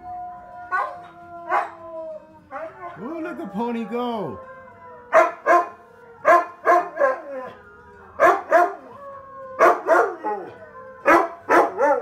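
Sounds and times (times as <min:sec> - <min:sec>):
dog howling: 0:00.0 - 0:12.0
dog yelping barks: 0:05.1 - 0:05.7.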